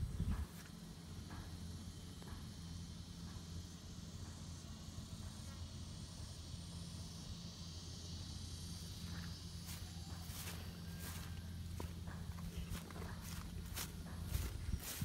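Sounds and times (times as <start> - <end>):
high insect drone: 0.0 - 15.0
footsteps in grass: 9.1 - 15.0.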